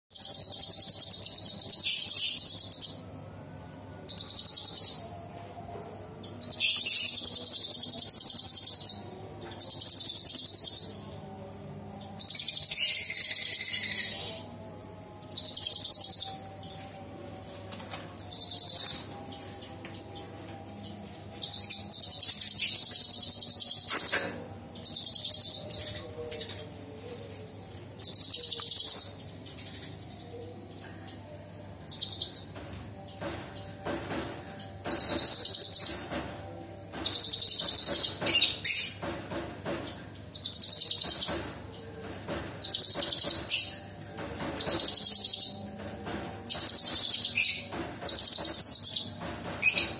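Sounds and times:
bird singing high-pitched phrases: 0.1s - 3.2s, 20.8s - 26.8s, 28.0s - 32.6s.

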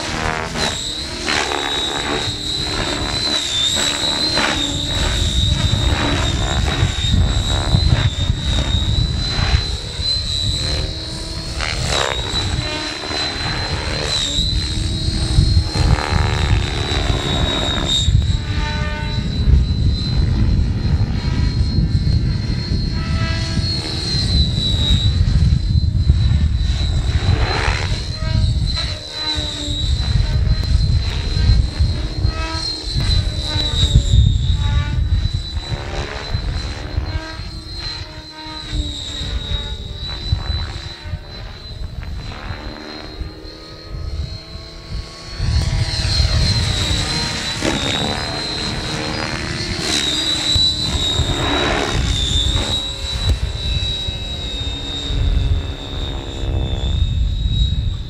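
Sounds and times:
model helicopter high-pitched whine: 0.0s - 58.0s.

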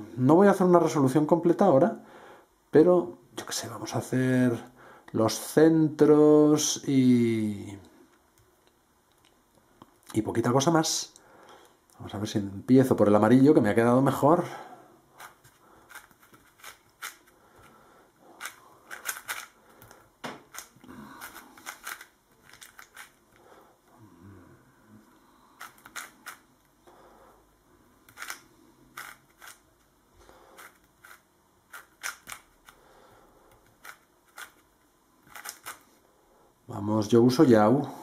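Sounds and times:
plastic puzzle cube clicking: 15.2s - 17.3s, 18.4s - 23.2s, 25.6s - 26.4s, 28.1s - 29.6s, 30.6s - 32.8s, 33.5s - 34.7s, 35.3s - 35.8s.

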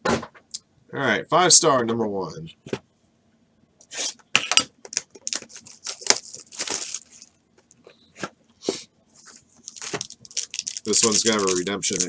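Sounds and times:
plastic wrap crinkling and tearing: 4.8s - 7.4s, 9.6s - 12.0s.

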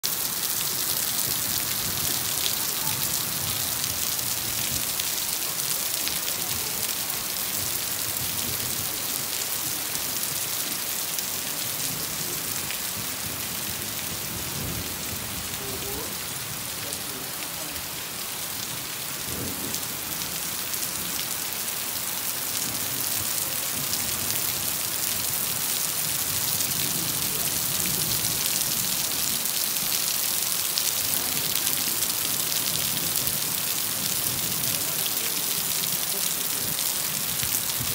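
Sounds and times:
rain on concrete: 0.0s - 37.9s.

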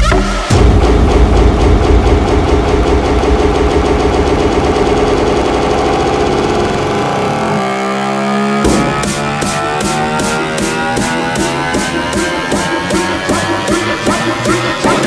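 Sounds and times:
steady held tone: 0.5s - 7.6s
motorcycle engine running rough: 0.5s - 15.0s.

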